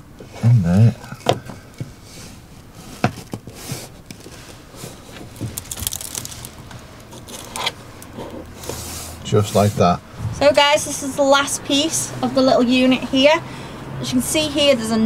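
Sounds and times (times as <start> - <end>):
plywood scraping and rustling: 1.1 - 9.7.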